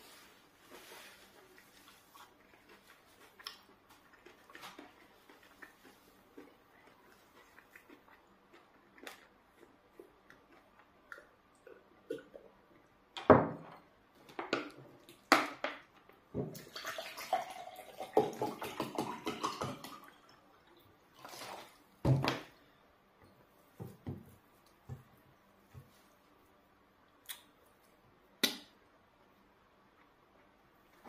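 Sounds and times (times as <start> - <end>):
water pouring into a glass: 16.6 - 20.4.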